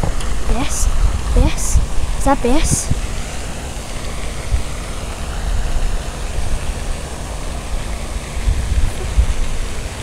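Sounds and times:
wind buffeting the microphone: 0.0 - 3.2, 7.6 - 10.0
steady hiss: 0.0 - 10.0.

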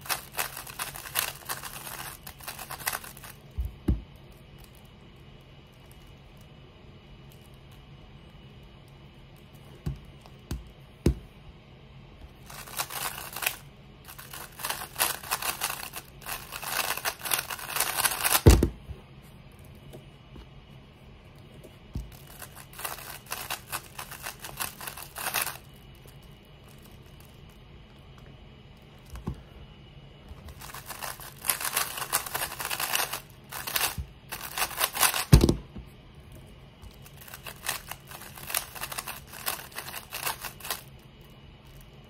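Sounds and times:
puzzle cube clicking turns: 0.0 - 3.4, 12.5 - 18.4, 22.1 - 25.6, 30.5 - 35.4, 37.0 - 40.9
cube thump on mat: 9.8 - 11.2, 18.2 - 18.9, 35.1 - 35.8.

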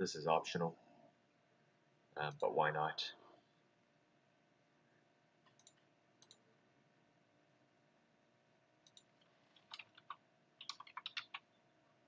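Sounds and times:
computer mouse clicks: 5.4 - 6.5, 8.8 - 11.5.

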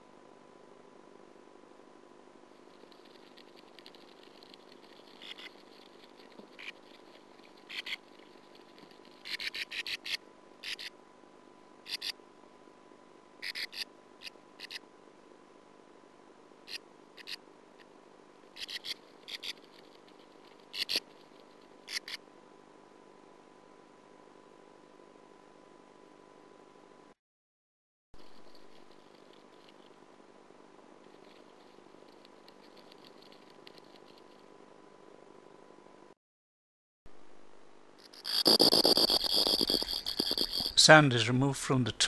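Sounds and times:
faint steady hum: 0.0 - 27.2, 28.2 - 36.2, 37.1 - 42.0
birds scratching in nest: 2.8 - 9.6, 38.2 - 40.8.

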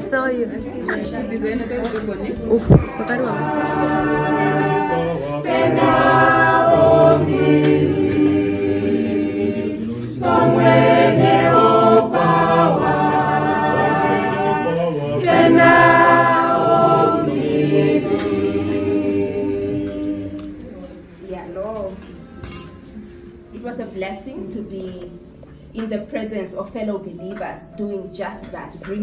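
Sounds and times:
choir singing in harmony: 0.0 - 21.3.

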